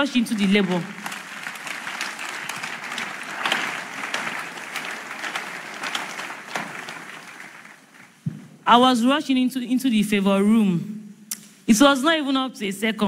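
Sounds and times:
congregation applauding: 0.0 - 8.4.

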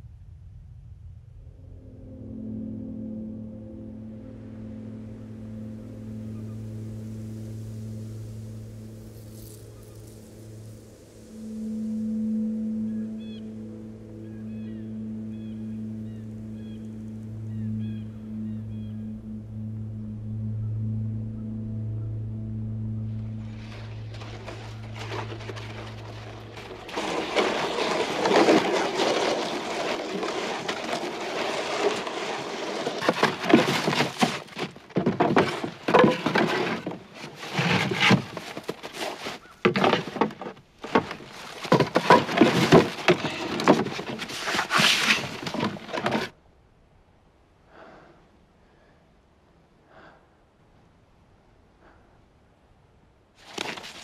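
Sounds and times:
wooden boards scraping and knocking: 23.6 - 46.3, 53.4 - 54.0.

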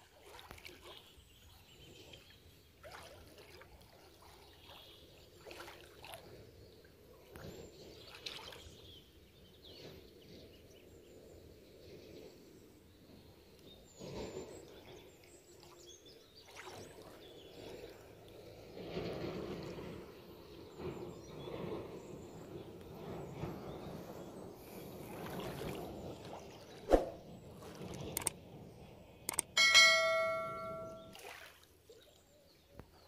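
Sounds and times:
shallow water splashing: 0.0 - 1.1, 2.8 - 6.4, 25.0 - 28.2.

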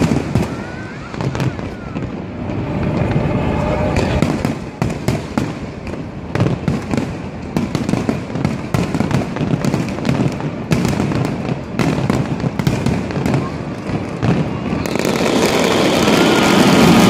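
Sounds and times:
fireworks bangs and crackles: 0.0 - 17.0
continuous low rumble: 0.1 - 7.8.

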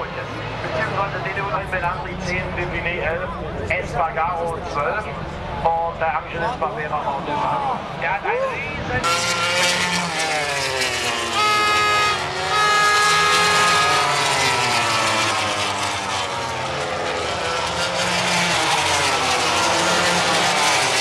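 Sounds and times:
racing motorcycle engines screaming: 6.4 - 21.0.

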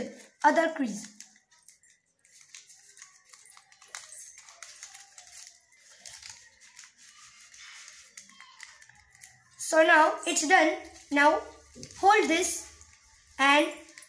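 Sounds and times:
paper rustling and crinkling: 0.0 - 9.8, 10.4 - 14.0.

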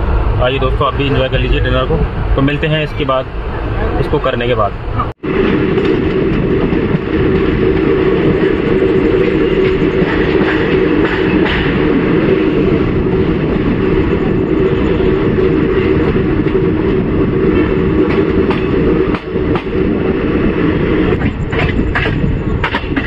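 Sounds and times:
train rumbling: 0.0 - 23.0
wheels clacking over rail joints: 5.0 - 23.0.

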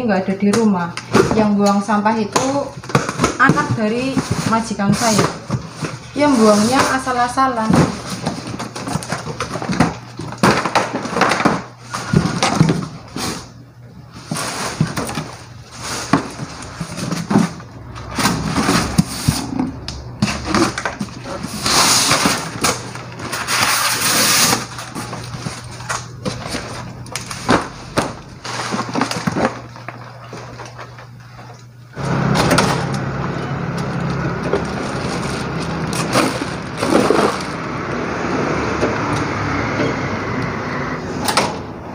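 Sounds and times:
crackling paper and plastic packaging: 0.4 - 38.7
steady low hum: 11.8 - 41.9
cardboard boxes being torn open: 14.2 - 30.8, 32.0 - 37.9
outdoor street noise: 16.5 - 23.5, 31.9 - 41.9.

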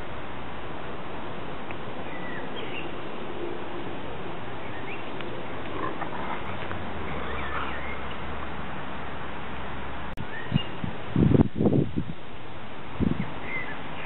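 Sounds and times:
faint bird chirps: 10.2 - 10.8.

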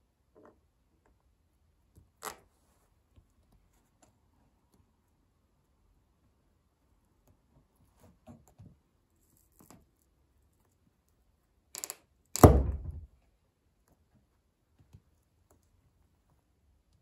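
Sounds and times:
pencil crackle: 7.0 - 11.6.

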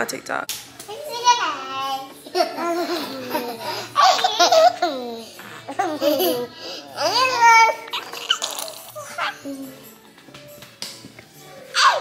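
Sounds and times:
baby laughing: 1.2 - 9.9.

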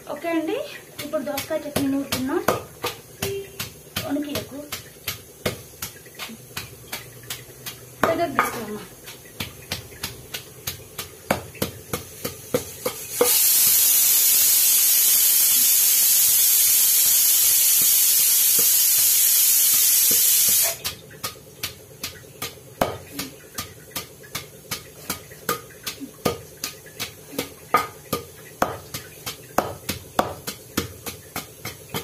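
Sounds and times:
pestle pounding in stone mortar: 0.2 - 13.8, 19.8 - 32.0
loud steady hiss: 12.2 - 20.8.

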